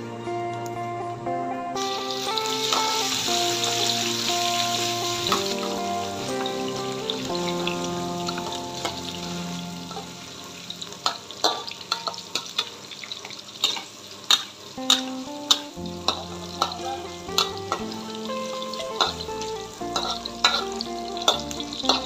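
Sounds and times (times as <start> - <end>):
frying sizzle: 1.8 - 22.0
metal spatula scraping a wok: 19.9 - 22.0.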